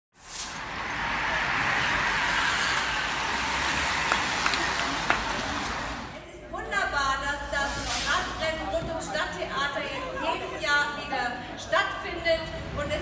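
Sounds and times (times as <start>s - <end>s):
bicycles rushing past: 0.4s - 6.1s.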